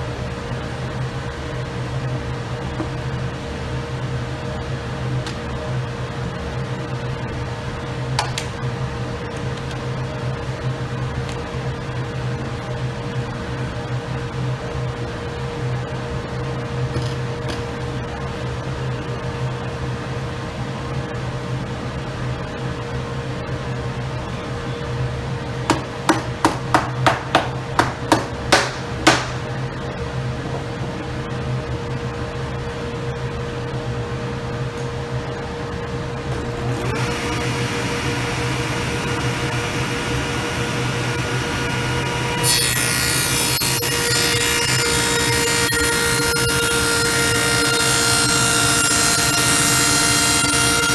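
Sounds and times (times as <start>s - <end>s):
sharp knocks: 25.7s - 29.5s
table saw motor: 36.3s - 50.9s
saw blade cutting wood: 42.4s - 50.9s.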